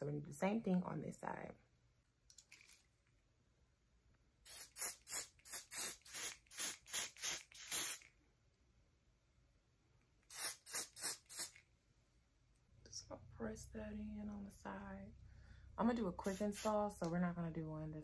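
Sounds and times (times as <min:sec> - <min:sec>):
aerosol spray hissing: 0:04.4 - 0:08.1, 0:10.3 - 0:11.6, 0:16.2 - 0:16.8.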